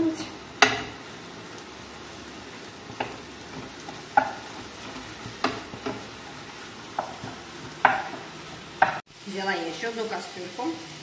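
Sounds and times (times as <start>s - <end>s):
meat sizzling in a frying pan: 0.0s - 11.0s
wooden spatula scraping a pan: 2.6s - 9.0s.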